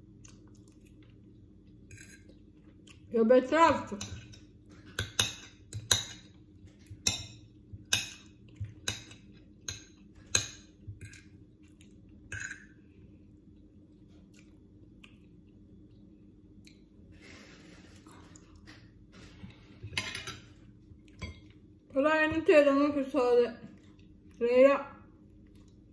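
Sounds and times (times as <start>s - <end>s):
cutlery clinking on a plate: 19.9s - 20.5s.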